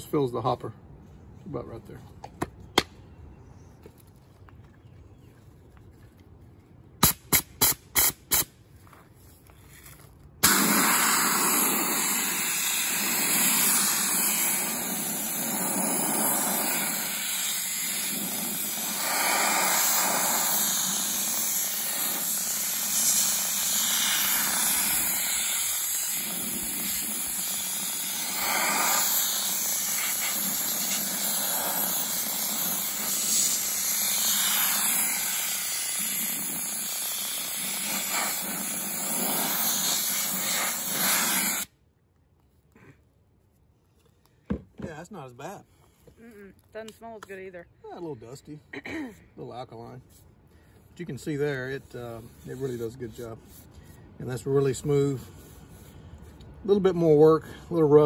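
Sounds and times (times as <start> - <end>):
soda blaster hissing: 10.4 - 41.7.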